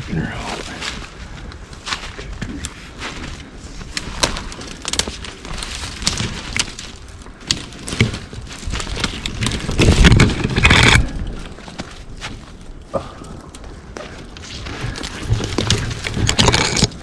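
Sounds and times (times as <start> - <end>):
footsteps crunching through snow: 0.0 - 7.1, 11.4 - 12.8
twigs snapping: 0.5 - 17.0.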